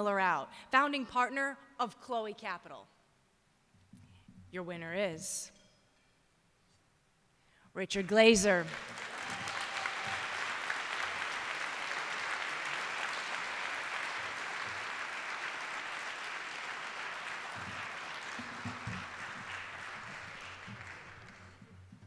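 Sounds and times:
audience applauding: 8.6s - 21.7s.

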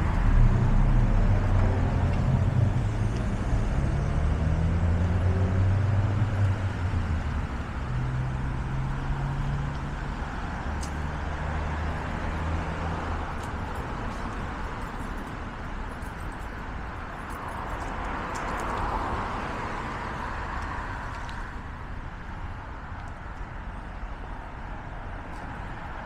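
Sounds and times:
loud vehicle passing: 0.0s - 14.4s
cars passing: 0.0s - 26.0s.

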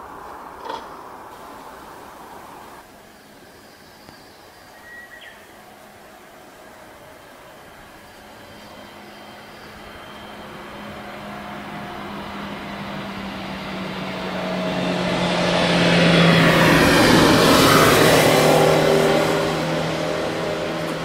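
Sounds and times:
road noise: 0.0s - 21.0s
vehicle engine approaching: 5.6s - 21.0s.

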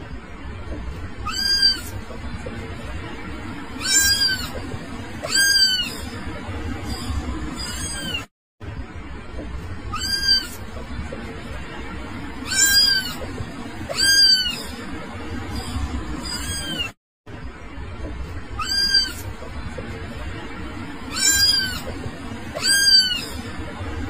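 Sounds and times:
kitten meowing: 1.2s - 1.9s, 3.8s - 4.6s, 5.2s - 6.1s, 7.6s - 8.3s, 9.9s - 10.6s, 12.4s - 13.2s, 13.9s - 14.7s, 16.2s - 17.0s, 18.6s - 19.2s, 21.1s - 21.9s, 22.6s - 23.4s.

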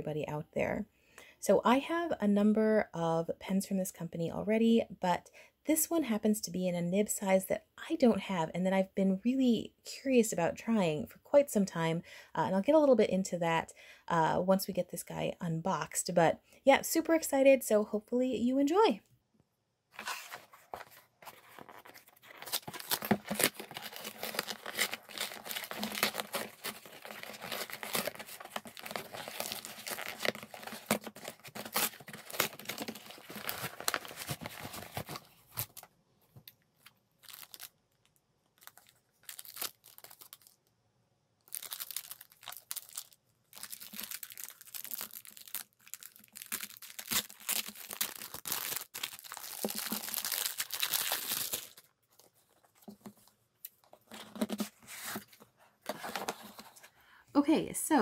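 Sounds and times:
cardboard box tearing: 20.0s - 35.7s.

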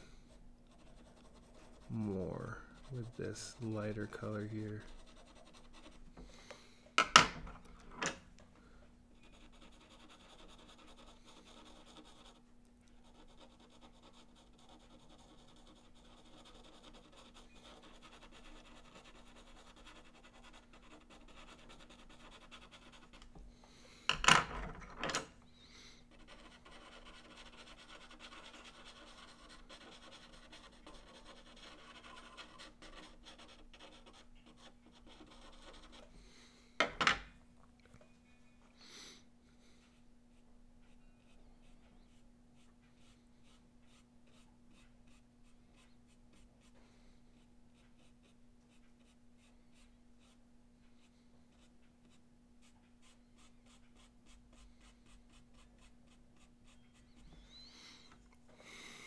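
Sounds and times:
pastel pencil scratching on paper: 0.3s - 6.1s, 9.2s - 12.4s, 13.0s - 23.3s, 26.0s - 36.1s, 40.3s - 46.8s, 47.4s - 50.4s, 51.0s - 57.7s.

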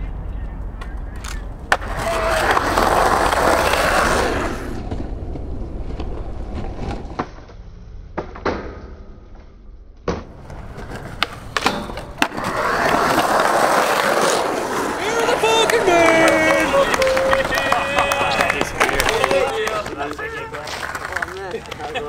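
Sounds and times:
skateboard wheels rolling on concrete: 0.2s - 7.8s, 9.9s - 22.0s
skateboard clacking on ground: 0.8s - 4.2s, 10.2s - 22.0s.

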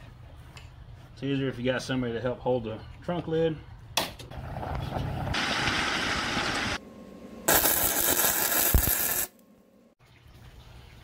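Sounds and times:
welding arc crackling: 7.5s - 9.4s.

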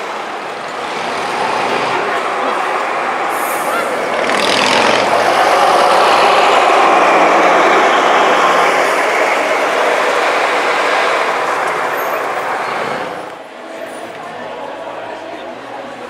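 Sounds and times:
bus engine driving past: 0.0s - 15.2s.

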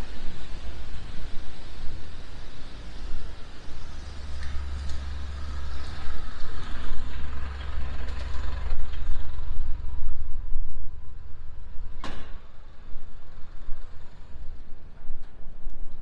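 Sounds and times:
tyre hiss on wet road: 0.0s - 8.6s
vehicle rumble: 0.0s - 16.0s.

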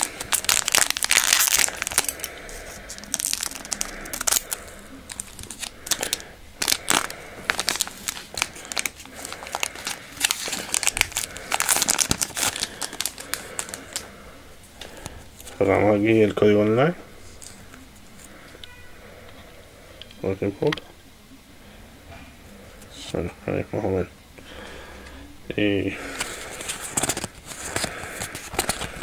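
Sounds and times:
wrapper tearing open: 0.0s - 14.0s
plastic wrapper crinkling: 0.0s - 14.2s, 26.1s - 29.0s.

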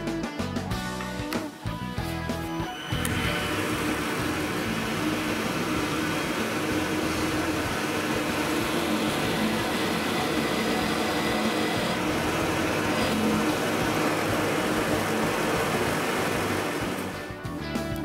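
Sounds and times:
drill press boring into board: 2.9s - 17.1s.

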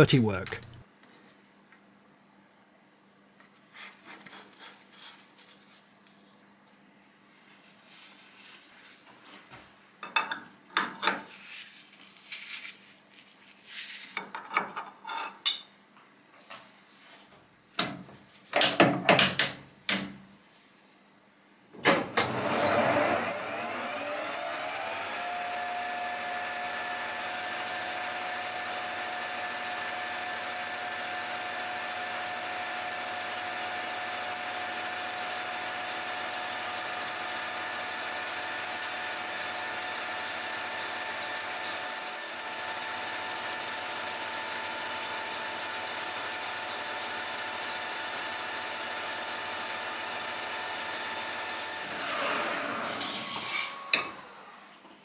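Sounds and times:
lathe whine: 21.9s - 54.6s.

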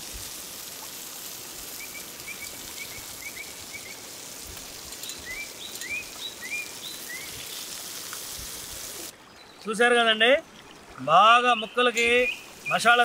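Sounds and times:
steady hiss: 0.0s - 9.9s, 11.4s - 13.0s
bird chirping: 1.8s - 4.0s, 5.0s - 7.7s, 11.4s - 13.0s.

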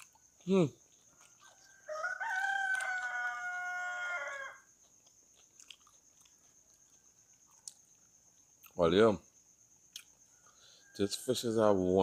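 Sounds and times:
rooster crowing: 1.3s - 4.7s, 10.3s - 11.4s.

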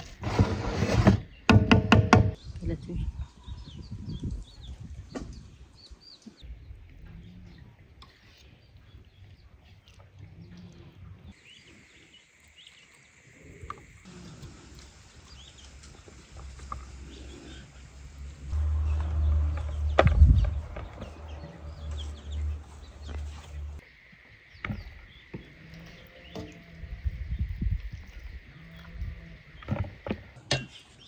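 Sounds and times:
birds chirping: 1.2s - 31.0s
low rumble: 18.0s - 23.8s.

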